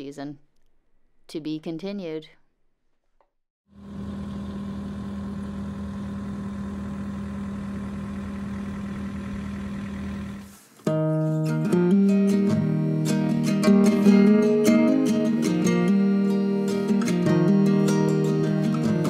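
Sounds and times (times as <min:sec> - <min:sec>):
diesel engine humming: 0:03.8 - 0:10.5
acoustic guitar music: 0:10.4 - 0:19.0.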